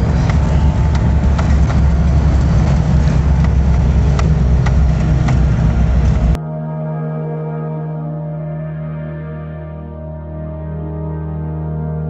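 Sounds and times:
car engine and tyre rumble: 0.0 - 6.4
ticks and rattles: 0.0 - 6.4.

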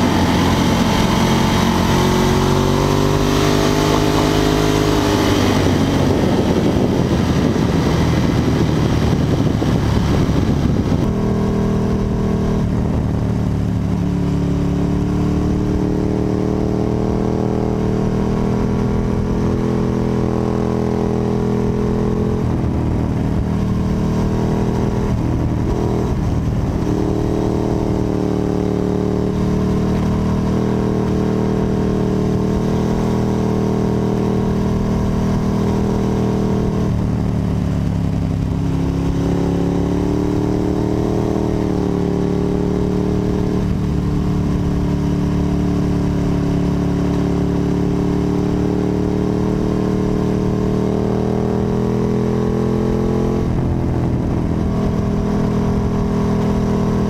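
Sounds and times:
motorcycle engine running: 0.0 - 57.0.

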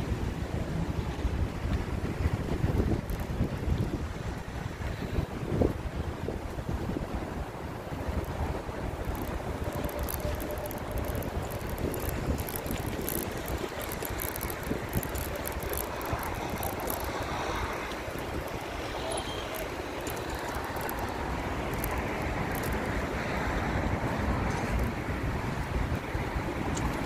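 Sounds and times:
road noise: 0.0 - 27.0
wind buffeting microphone: 0.0 - 27.0
light crackles: 2.4 - 4.5, 7.9 - 23.0.

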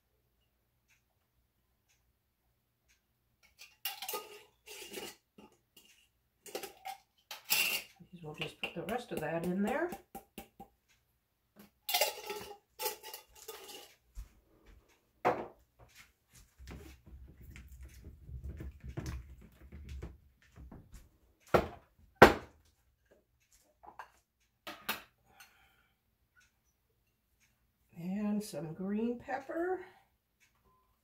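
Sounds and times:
glass dishes clattering: 3.6 - 7.9, 11.9 - 13.9.

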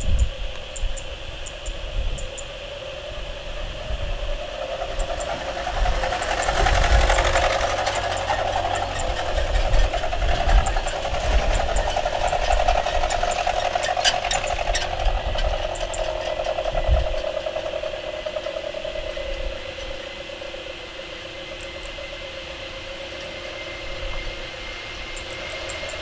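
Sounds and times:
jet engines droning at low thrust: 0.0 - 26.0.

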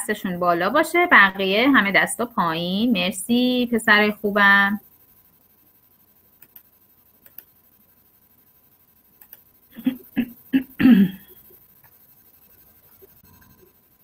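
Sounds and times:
broken voice over video call: 0.0 - 4.8
faint clicks: 6.4 - 7.5, 9.2 - 9.5.

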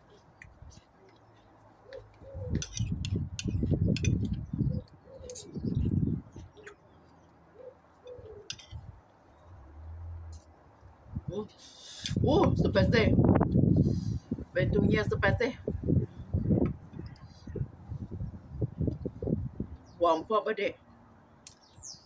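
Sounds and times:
pigeon cooing: 1.8 - 2.8, 4.6 - 5.7, 7.6 - 8.5
fork and spoon clicking in bowl: 2.6 - 4.4, 8.5 - 8.8.

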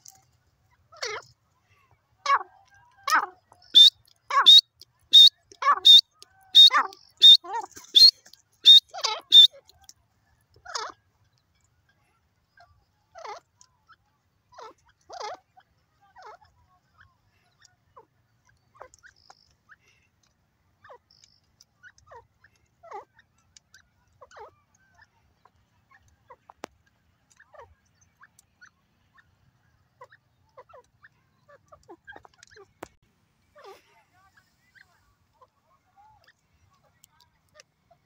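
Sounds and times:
bird chirping calls: 2.3 - 9.9, 12.6 - 38.0.

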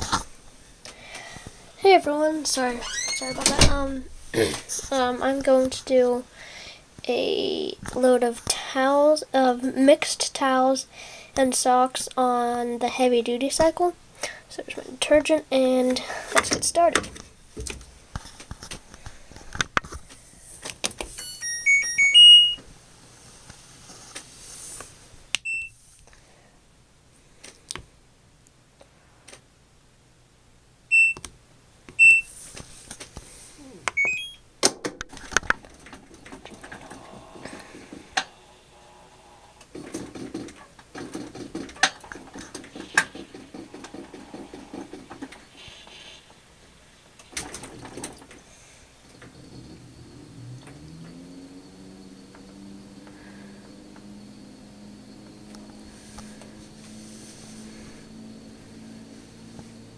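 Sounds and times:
rising chime: 21.2 - 22.6, 49.4 - 59.9
washer control panel beeps: 21.2 - 22.6, 25.4 - 25.7, 30.9 - 31.3, 32.0 - 32.3, 33.9 - 34.4
washing machine running: 35.6 - 45.4, 47.3 - 59.9.

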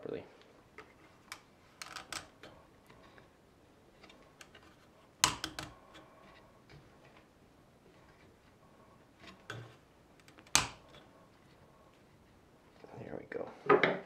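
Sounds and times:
plastic and wood clicking and tapping: 4.0 - 6.0.

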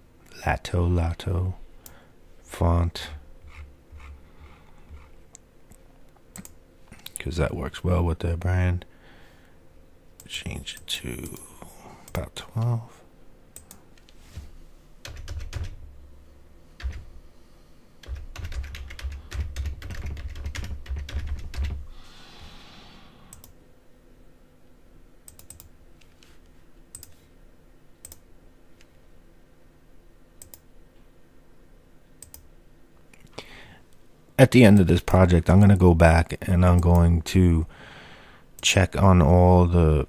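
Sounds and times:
typing on keyboard: 15.0 - 15.8, 18.0 - 21.8.

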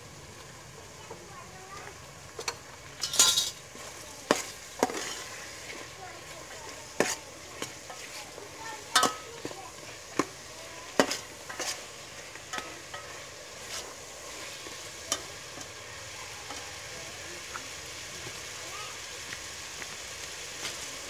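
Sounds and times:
meat sizzling in a pot: 0.0 - 21.0
metal ladle scraping a pot: 3.0 - 15.8.

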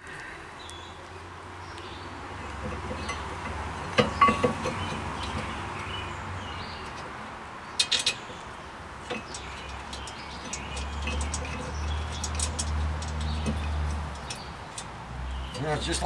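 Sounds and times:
metal parts clinking: 7.8 - 8.2.

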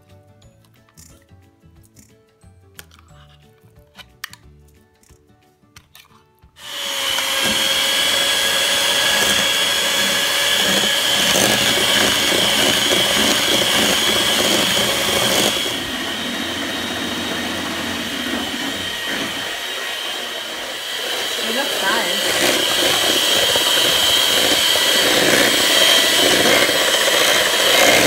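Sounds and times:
electric hand mixer whining: 6.6 - 28.0
spoon scraping: 6.7 - 28.0.

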